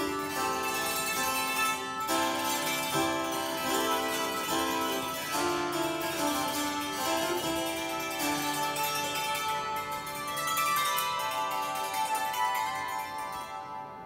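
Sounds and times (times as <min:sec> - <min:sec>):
spinet: 0:00.0 - 0:10.8
dulcimer: 0:00.0 - 0:14.0.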